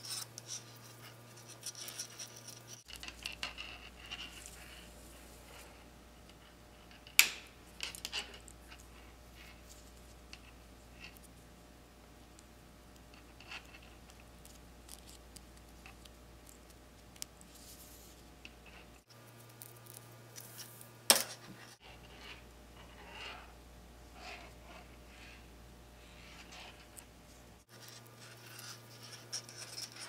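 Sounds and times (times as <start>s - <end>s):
cord rubbing and rustling: 0.0s - 11.4s, 13.1s - 30.0s.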